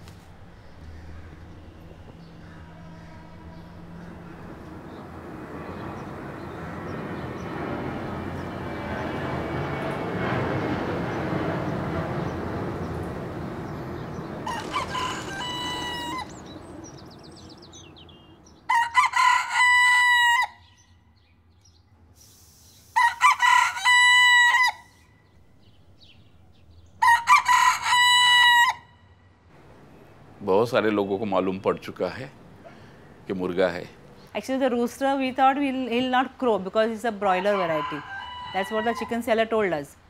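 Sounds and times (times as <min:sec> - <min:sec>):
airplane passing: 0:00.0 - 0:40.0
rooster crowing: 0:14.4 - 0:16.6, 0:18.6 - 0:20.7, 0:23.0 - 0:25.0, 0:27.0 - 0:29.0, 0:37.2 - 0:39.5.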